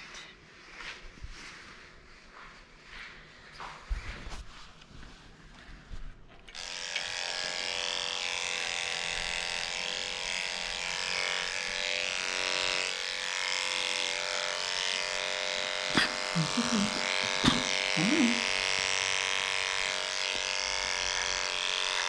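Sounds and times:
electric clippers buzzing: 6.5s - 22.0s.

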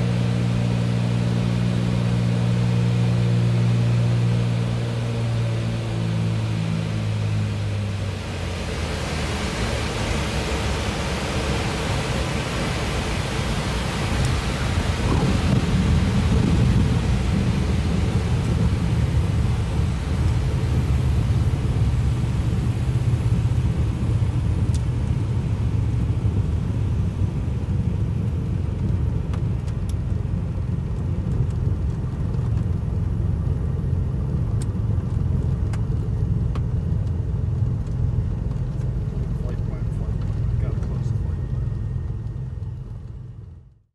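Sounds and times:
aircraft engines idling: 0.0s - 43.8s
wheels rumbling on runway: 0.0s - 43.9s
rushing air noise: 3.4s - 26.8s.

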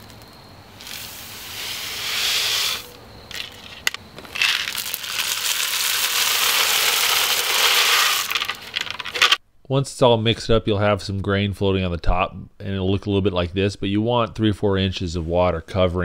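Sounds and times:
grain pouring into metal pot: 4.3s - 9.4s.

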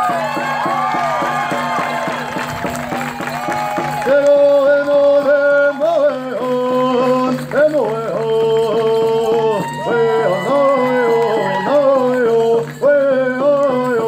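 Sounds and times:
steady drumbeat: 0.0s - 5.4s.

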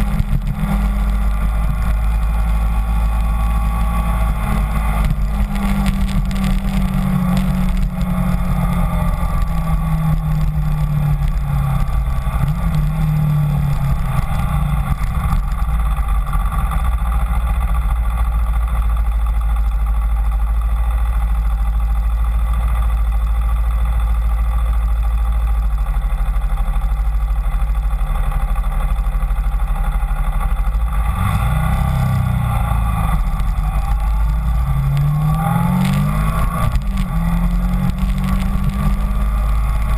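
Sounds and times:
wind rumble on microphone: 0.0s - 18.8s, 30.9s - 39.9s
motorcycle engine running: 0.0s - 39.9s.

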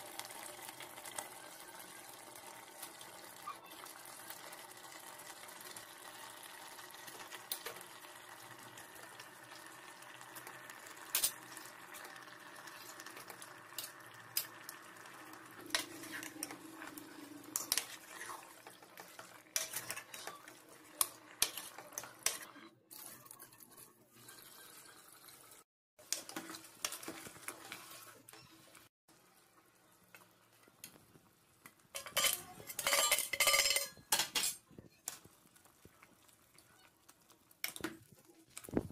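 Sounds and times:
ladle scraping metal pot: 12.6s - 28.4s, 32.0s - 34.6s.

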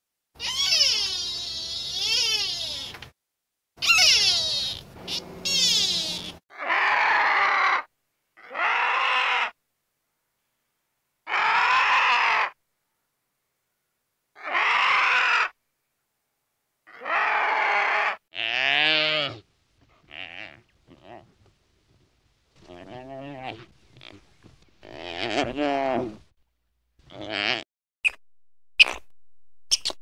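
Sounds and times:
animal calling: 0.4s - 3.0s, 3.8s - 9.6s, 16.9s - 21.4s, 22.6s - 26.2s.

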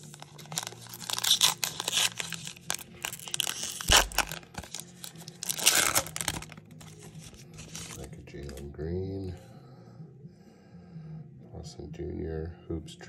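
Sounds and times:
foil pack tearing: 0.0s - 8.0s
foil wrapper crinkling: 0.0s - 8.1s.

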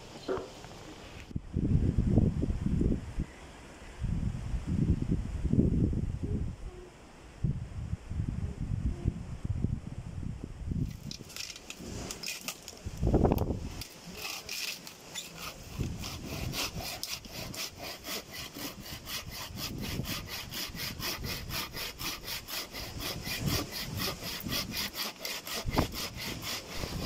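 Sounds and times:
hand saw sawing: 13.8s - 27.0s.

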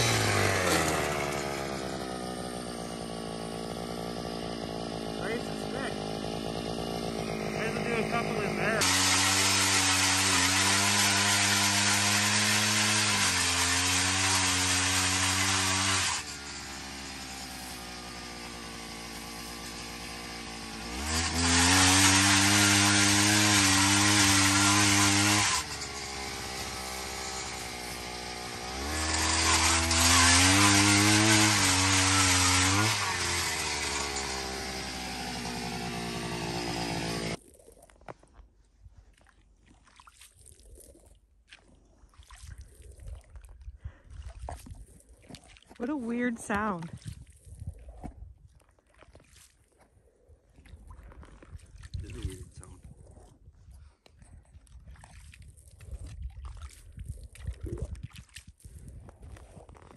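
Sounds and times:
drill boring through ice: 0.0s - 37.4s, 45.8s - 46.9s.

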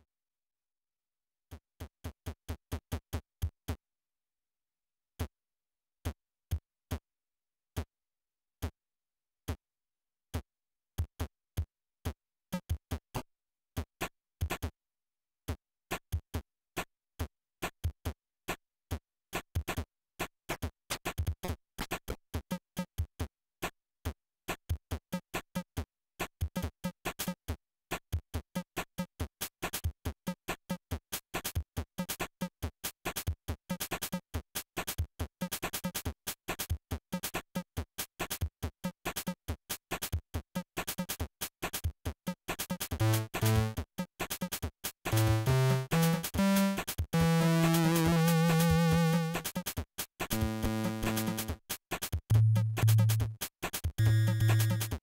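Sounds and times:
electronic drum beat: 52.3s - 55.0s.

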